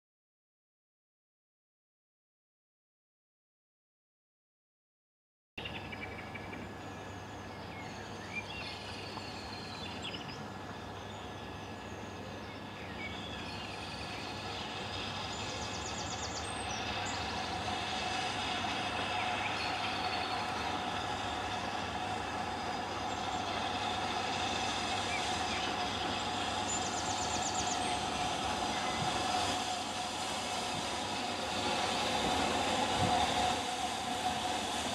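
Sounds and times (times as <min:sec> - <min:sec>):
birds singing: 0:05.6 - 0:29.8
steam train approaching: 0:05.6 - 0:34.9.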